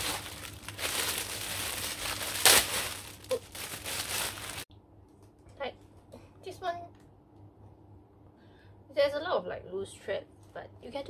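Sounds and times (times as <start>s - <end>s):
plastic bag crinkling: 0.0s - 4.7s.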